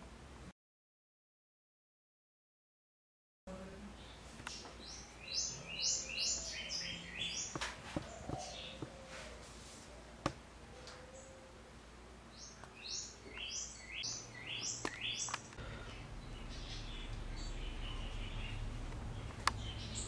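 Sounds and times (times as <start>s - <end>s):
low steady hum: 3.5s - 20.0s
bird chirping: 3.9s - 11.6s, 12.3s - 20.0s.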